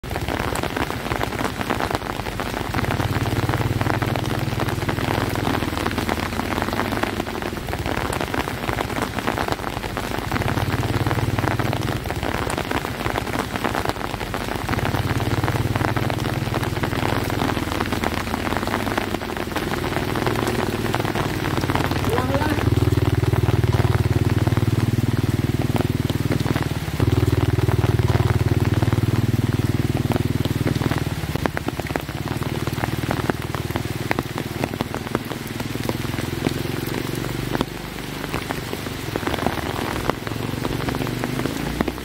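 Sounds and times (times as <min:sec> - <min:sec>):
steady rain falling: 0:00.0 - 0:42.0
low rumble: 0:14.2 - 0:35.9.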